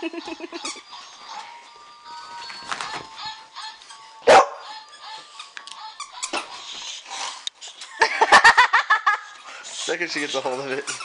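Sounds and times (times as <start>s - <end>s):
background music with held notes: 0.0s - 11.0s
dog barking: 4.3s - 4.6s.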